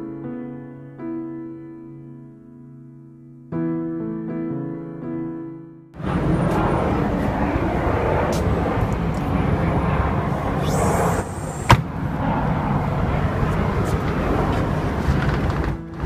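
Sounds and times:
piano tune: 0.0 - 10.2
outdoor rumble: 6.0 - 16.0.

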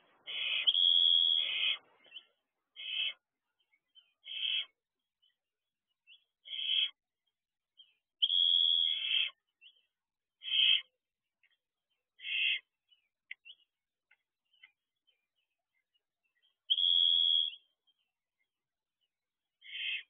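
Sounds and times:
barn owl screeching: 0.2 - 1.9, 2.8 - 3.3, 4.2 - 4.8, 6.4 - 7.0, 8.2 - 9.4, 10.4 - 10.9, 12.2 - 12.7, 19.6 - 20.0.

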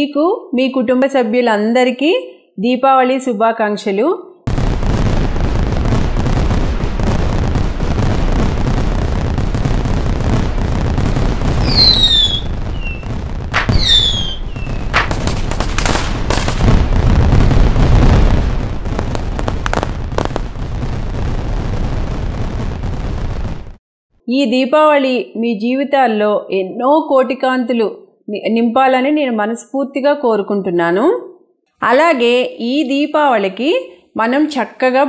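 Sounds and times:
fireworks bursts and crackle: 4.5 - 23.8
sharp firework cracks: 4.5 - 23.8
fireworks falling whistles: 4.8 - 18.4.

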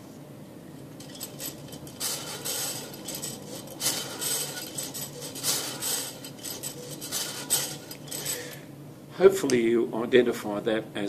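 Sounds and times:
wave machine rods clattering: 0.8 - 8.6.

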